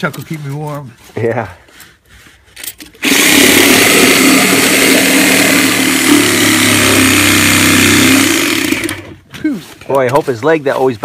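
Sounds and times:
reciprocating saw cutting timber: 0:02.9 - 0:09.2.

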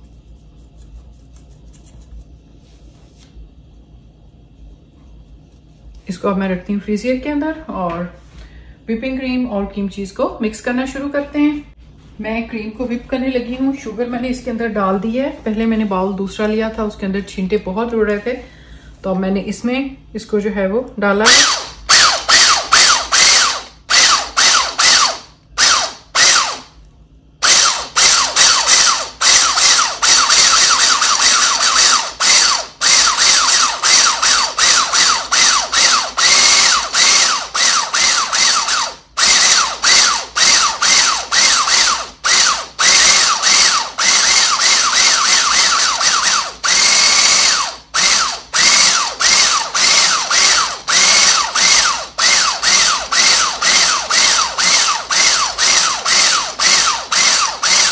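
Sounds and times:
electric mixer whining: 0:21.2 - 0:26.7, 0:27.4 - 0:57.9.

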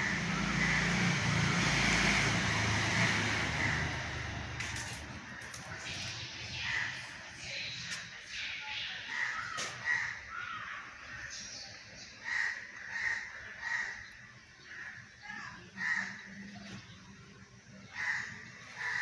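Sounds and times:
crows cawing: 0:00.0 - 0:01.1, 0:03.4 - 0:04.3, 0:09.1 - 0:11.4, 0:12.2 - 0:16.6, 0:17.8 - 0:19.0.

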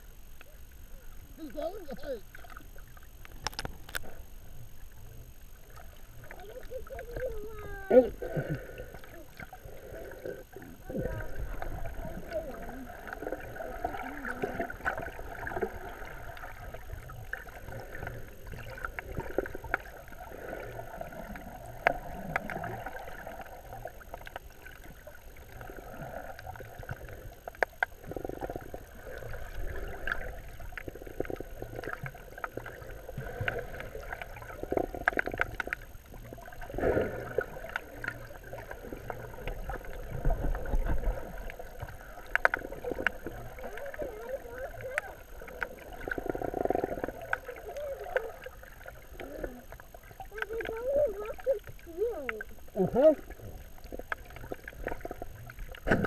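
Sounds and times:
muffled underwater sloshing: 0:00.0 - 0:56.0
small clicks and knocks: 0:03.2 - 0:04.1.

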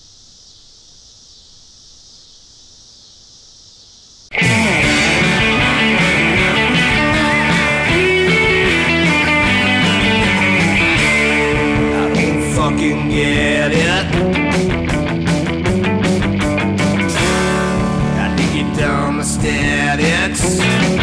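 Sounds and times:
loud rock song: 0:04.3 - 0:21.0.

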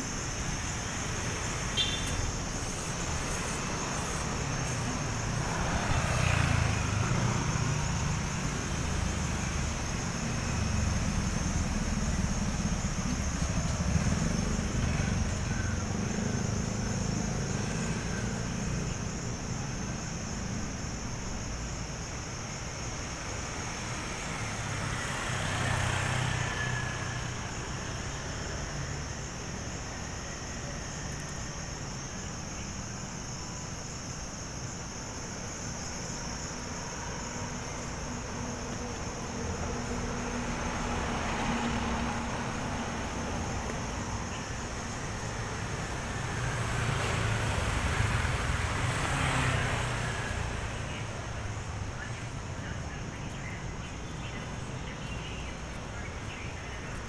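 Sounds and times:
city street hum: 0:00.0 - 0:57.0
vehicle passing: 0:00.6 - 0:20.6, 0:23.7 - 0:30.0, 0:37.2 - 0:56.3.

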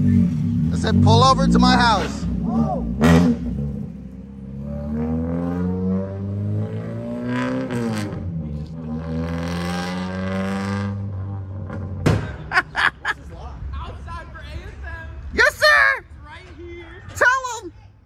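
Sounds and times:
car engine accelerating: 0:00.0 - 0:12.1.

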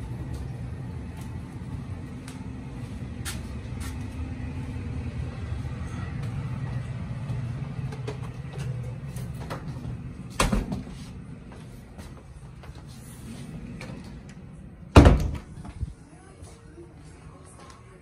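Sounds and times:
low rumble: 0:00.0 - 0:16.2
door thumping open: 0:14.9 - 0:15.8.

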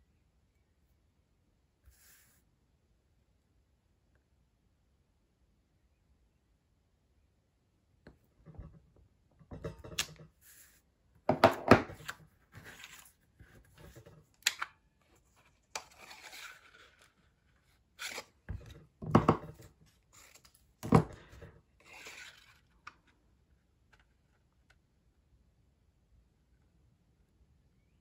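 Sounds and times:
card rustling and sliding: 0:09.9 - 0:18.8.

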